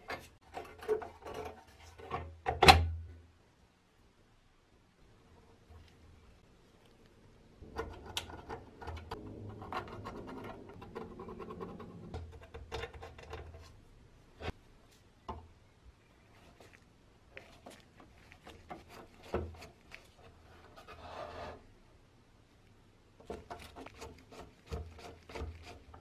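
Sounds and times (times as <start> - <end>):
metal scraping and rubbing: 7.6 - 14.6, 17.6 - 21.7.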